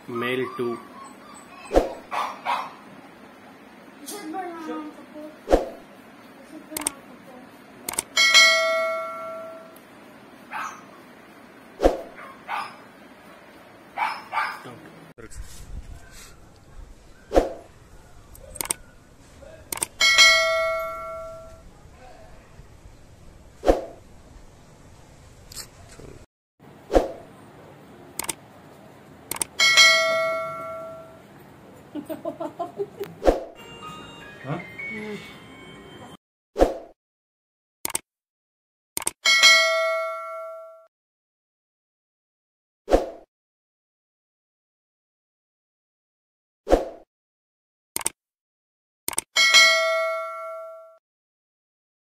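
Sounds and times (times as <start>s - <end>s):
puppy barking: 0.1s - 2.9s, 10.5s - 11.1s, 12.1s - 12.9s, 14.0s - 14.8s
clicks: 6.8s - 7.0s, 7.9s - 8.1s, 18.3s - 18.8s, 19.7s - 20.0s, 28.2s - 28.4s, 29.3s - 29.6s, 37.8s - 38.0s, 39.0s - 39.2s, 48.0s - 48.2s, 49.1s - 49.3s
mouse clicks: 6.8s - 7.0s, 18.6s - 18.8s, 28.2s - 28.4s, 48.0s - 48.2s
bell chime: 20.0s - 21.6s, 29.6s - 31.2s, 33.6s - 36.2s, 49.4s - 51.0s.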